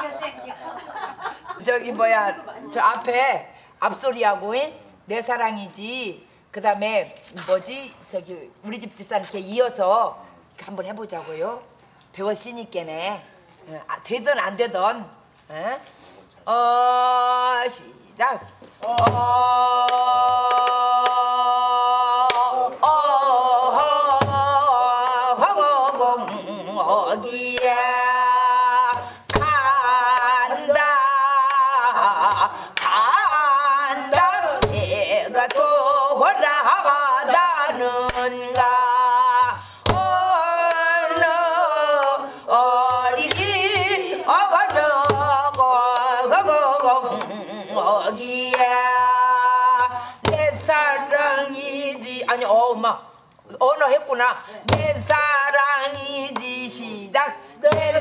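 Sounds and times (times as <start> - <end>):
woman singing folk song: 16.5 - 58.0.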